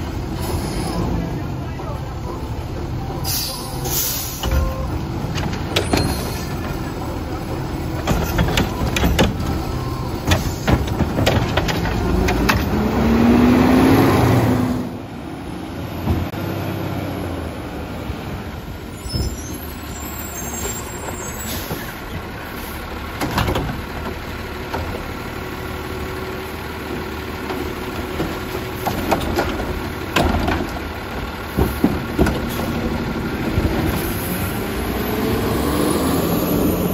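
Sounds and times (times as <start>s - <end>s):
truck diesel engine revving: 0.0s - 18.8s, 19.6s - 36.9s
carts knocking and banging: 4.3s - 13.3s, 20.6s - 25.3s, 26.8s - 34.7s.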